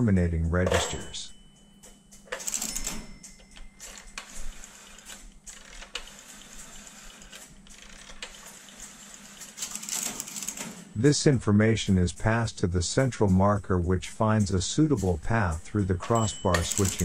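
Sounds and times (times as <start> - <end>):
relays clicking and clattering: 2.2 - 11.0, 14.4 - 17.0.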